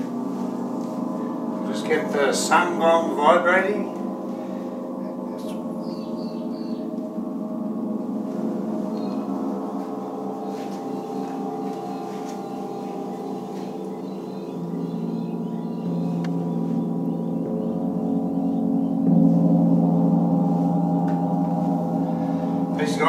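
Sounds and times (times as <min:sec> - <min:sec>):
deep gong tone: 0:00.0 - 0:23.0
gong vibrating: 0:00.0 - 0:23.0.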